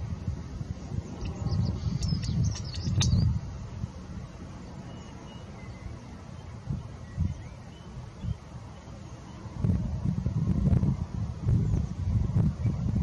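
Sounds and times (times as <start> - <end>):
wind buffeting microphone: 0.0 - 4.6, 6.4 - 8.6, 9.4 - 13.0
small birds chirping: 0.9 - 3.4, 4.6 - 9.6.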